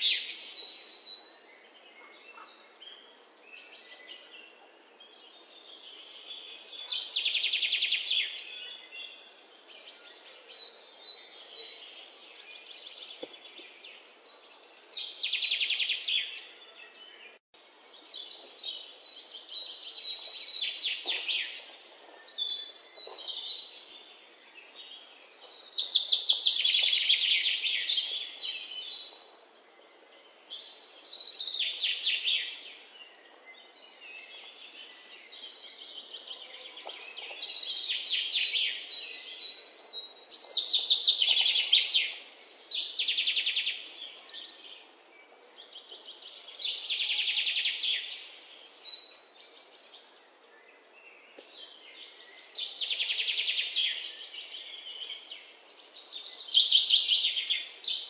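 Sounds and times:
songbirds chirping and trilling: 0.0s - 58.0s.

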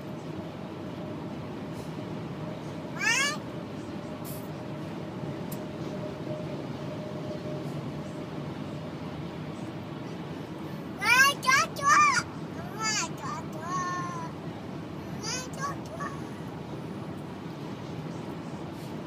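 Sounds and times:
toddler squealing: 3.0s - 3.4s
car driving hum: 9.4s - 18.7s.

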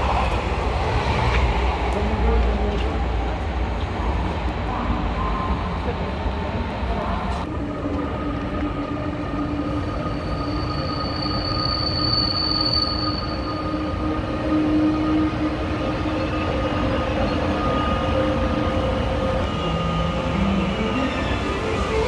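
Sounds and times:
electric locomotive whine: 3.8s - 22.0s
thin high squeal: 10.2s - 13.8s.

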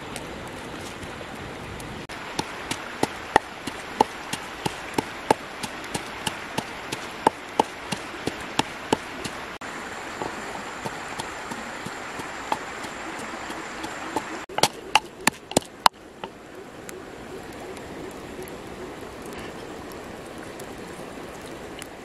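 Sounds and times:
steady background hiss: 0.0s - 22.0s
pestle pounding in mortar: 10.8s - 15.8s.

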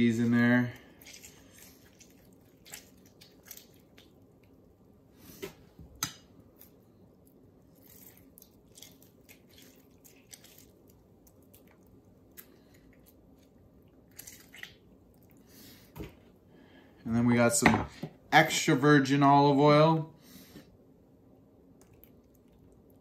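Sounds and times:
juice dripping: 0.0s - 5.0s, 6.0s - 15.5s, 21.7s - 23.0s.

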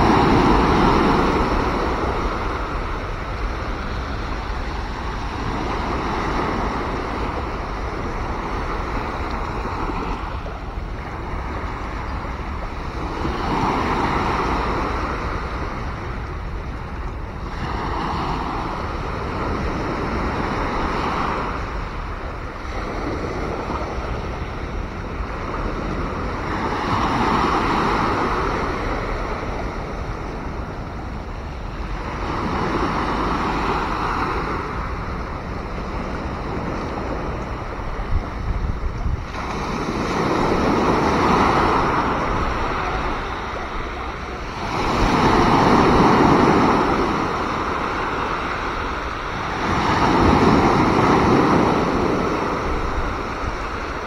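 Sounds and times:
sea waves breaking: 0.0s - 54.0s.

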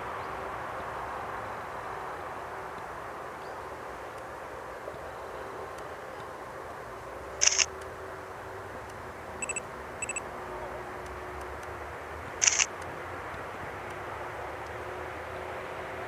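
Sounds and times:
low steady background noise: 0.0s - 16.0s
camera shutter click: 7.4s - 7.7s, 12.4s - 12.7s
short double beeps: 9.4s - 10.2s.

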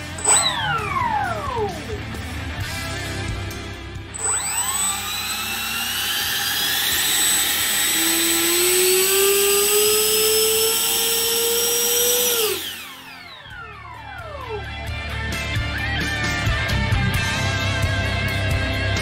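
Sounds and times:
electric ducted fan whine: 0.0s - 15.0s.

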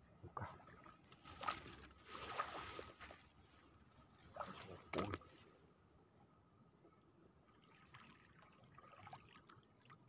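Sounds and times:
water sloshing: 0.7s - 3.6s, 4.2s - 5.4s.

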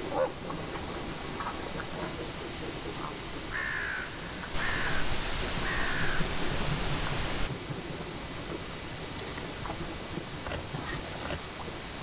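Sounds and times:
crow cawing: 3.5s - 7.5s
loud steady hiss: 4.6s - 7.5s.

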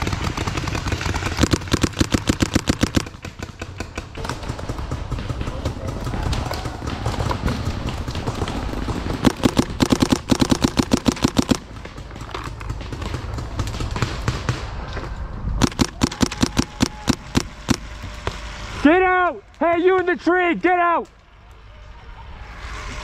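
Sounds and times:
paintball markers firing: 0.0s - 18.4s.

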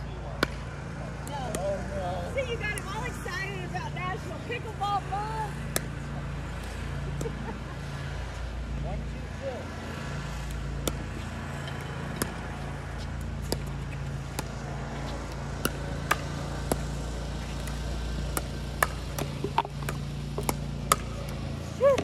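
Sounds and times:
paddles hitting plastic ball: 13.2s - 22.0s.

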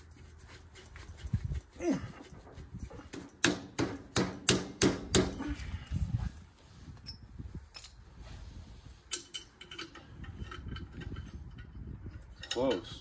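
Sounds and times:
light metal clicks and clinks: 9.1s - 13.0s.

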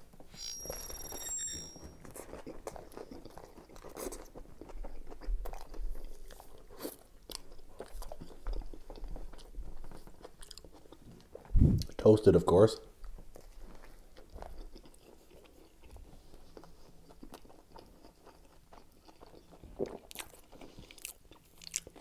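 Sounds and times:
crunchy chewing: 1.8s - 12.0s, 13.1s - 22.0s
wet mouth sounds: 2.1s - 12.0s
biting into toasted sandwich: 13.3s - 22.0s.

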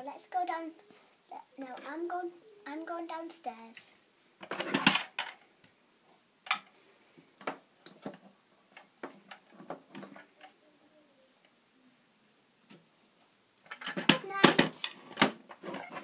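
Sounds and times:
toys clicking on wooden shelves: 2.8s - 5.4s, 13.6s - 16.0s.

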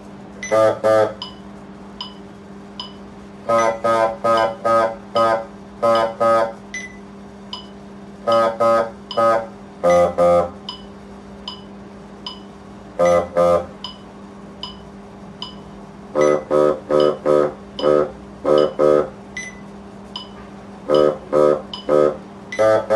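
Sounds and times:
steady low hum: 0.0s - 22.9s
bassoon playing short notes: 0.5s - 1.2s, 3.5s - 6.6s, 8.3s - 10.6s, 20.9s - 22.9s.

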